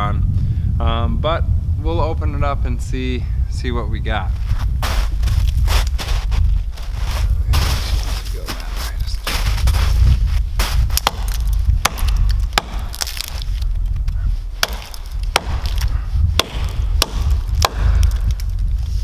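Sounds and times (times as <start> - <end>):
low rumble: 0.0 - 19.0
wood being split: 10.6 - 18.7.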